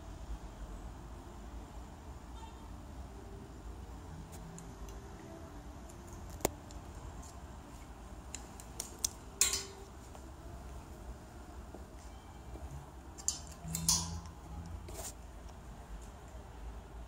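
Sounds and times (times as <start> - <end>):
low steady hum: 0.0 - 17.0
hangers clicking: 8.3 - 9.9, 13.2 - 14.4.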